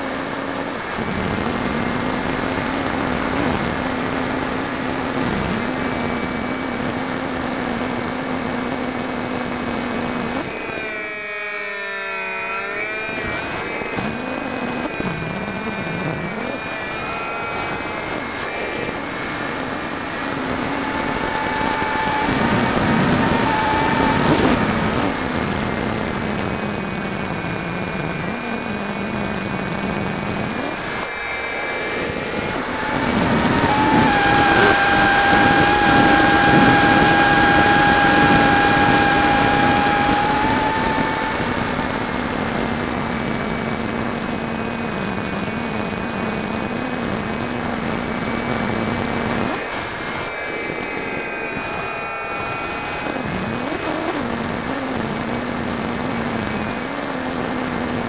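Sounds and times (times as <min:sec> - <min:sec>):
electric motor and propeller whine: 0:00.0 - 0:58.0
wind rushing past microphone: 0:13.1 - 0:43.8.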